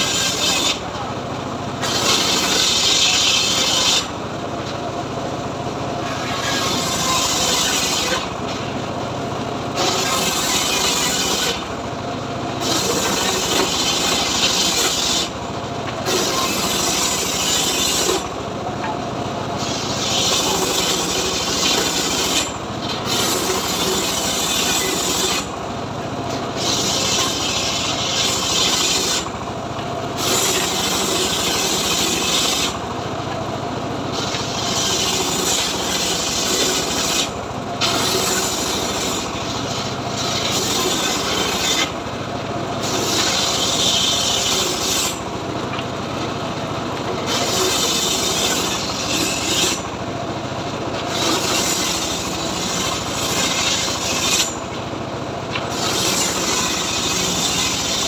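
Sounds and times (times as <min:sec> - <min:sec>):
saw blade ripping through log: 0:00.0 - 0:00.9, 0:01.8 - 0:04.1, 0:06.0 - 0:08.4, 0:09.8 - 0:11.7, 0:12.6 - 0:15.4, 0:16.0 - 0:18.3, 0:19.6 - 0:25.6, 0:26.5 - 0:29.3, 0:30.2 - 0:32.8, 0:34.1 - 0:42.0, 0:42.8 - 0:45.2, 0:47.2 - 0:49.9, 0:51.0 - 0:54.7, 0:55.5 - 0:58.0
engine drone: 0:00.0 - 0:58.0.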